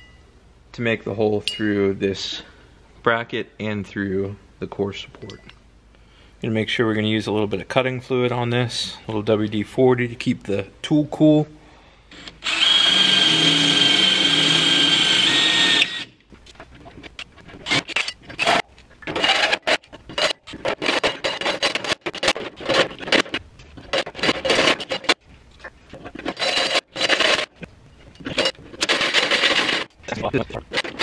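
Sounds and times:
cordless drill whining: 12.1 - 16.2.

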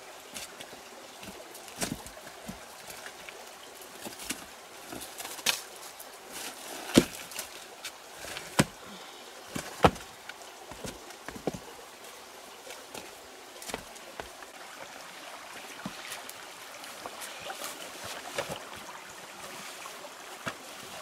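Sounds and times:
small rocky stream washing: 0.0 - 21.0
creek stones knocking together: 0.3 - 5.8, 6.8 - 8.8, 9.5 - 11.8, 12.6 - 14.6.

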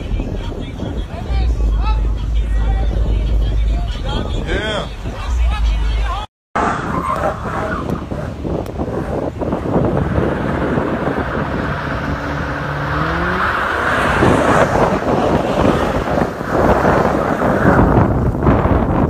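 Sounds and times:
wind buffeting microphone: 0.0 - 19.0
car engine revving: 6.6 - 18.2.

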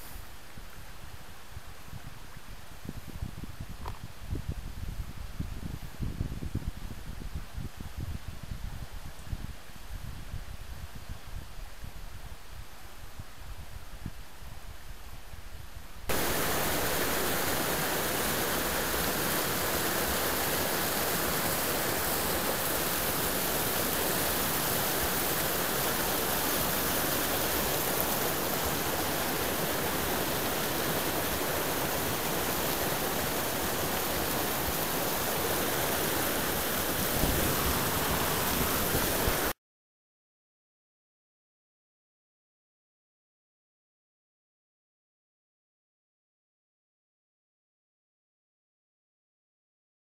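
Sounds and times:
stream rushing over boulders: 16.1 - 39.6.

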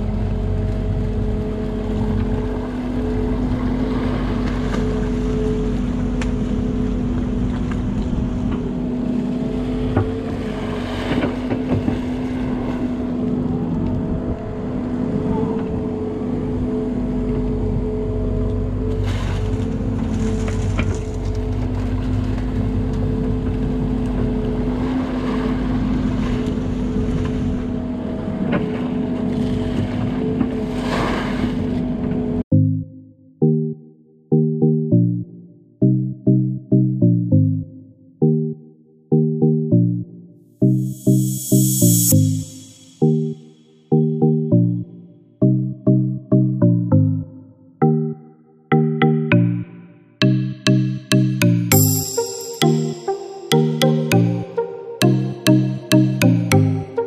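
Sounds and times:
steady hum: 40.6 - 45.0.

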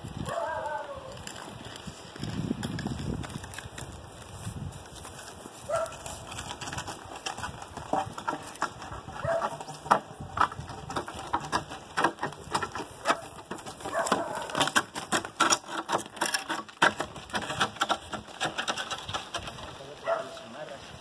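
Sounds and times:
hooves on gravel: 0.0 - 21.0
wooden planks knocking and scraping: 4.9 - 20.5.

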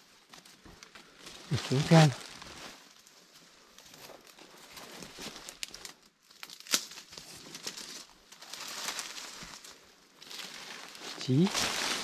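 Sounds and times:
dry leaves crackling underfoot: 0.0 - 12.0
twigs snapping: 5.0 - 12.0.

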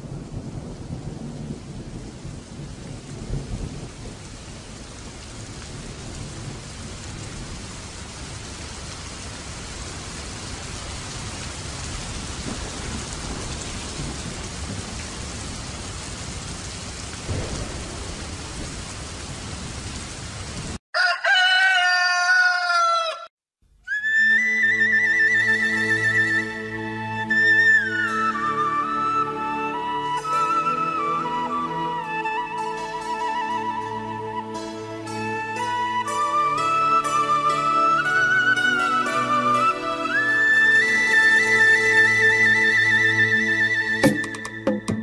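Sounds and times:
steady rain: 0.0 - 20.8, 24.6 - 44.6
thunder rumble: 0.0 - 20.8
rooster crowing: 20.9 - 23.3.

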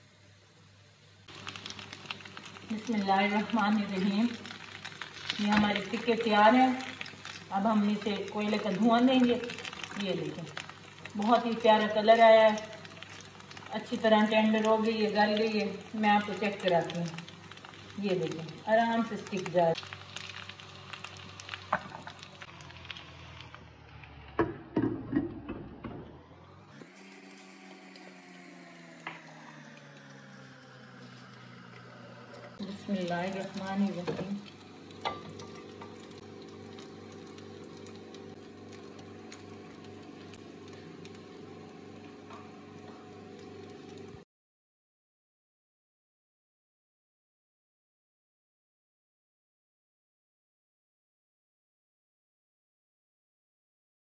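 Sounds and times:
meat sizzling in a pan: 1.3 - 23.5, 31.0 - 44.2
small motor humming with throb: 1.3 - 24.6, 25.7 - 44.2.

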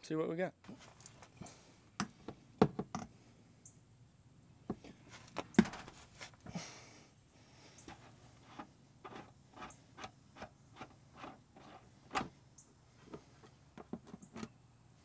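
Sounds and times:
handling clicks and knocks: 4.7 - 6.0, 7.9 - 12.4, 13.0 - 14.6.

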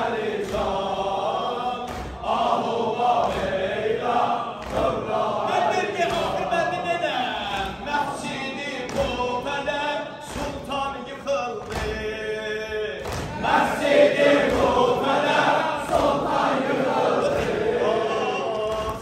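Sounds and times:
congregation singing in chorus: 0.0 - 19.0
man chanting: 5.5 - 13.0.

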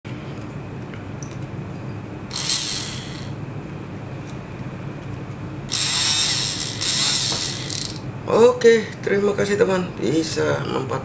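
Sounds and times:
electric pump motor whirring: 2.3 - 3.4, 5.7 - 8.1.

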